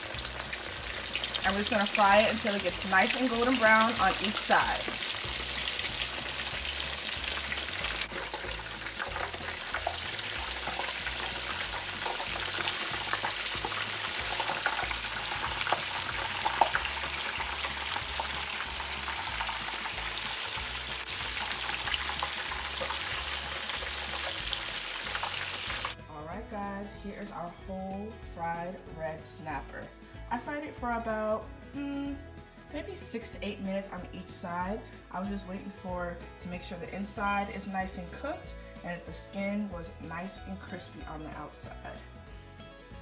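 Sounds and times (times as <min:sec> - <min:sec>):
fish deep-frying in oil: 0:00.0 - 0:26.0
spattering oil crackles: 0:00.0 - 0:26.0.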